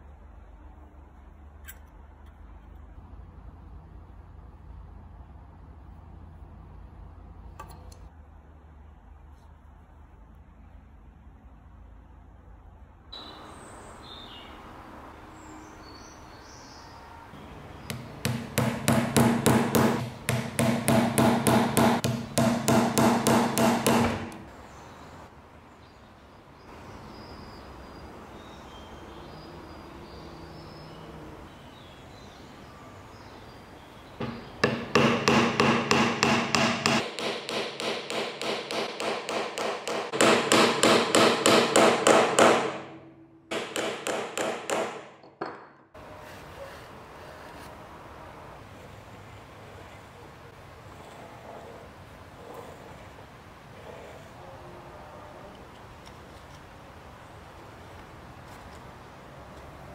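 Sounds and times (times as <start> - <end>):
small hammer tapping nails: 17.8 - 24.4, 34.2 - 42.7.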